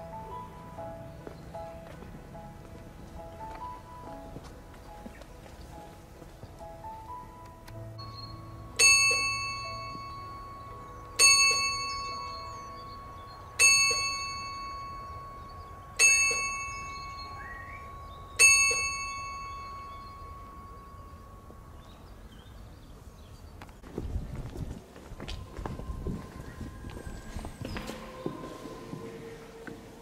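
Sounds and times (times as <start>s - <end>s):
chapel bell tolling: 8.0s - 22.6s.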